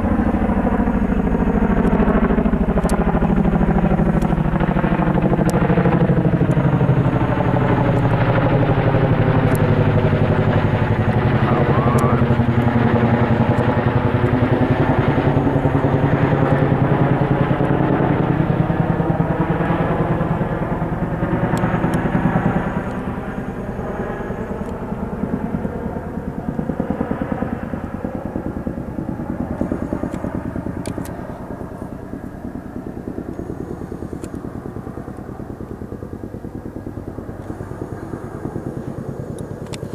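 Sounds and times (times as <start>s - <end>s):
helicopter flying overhead: 0.0s - 39.9s.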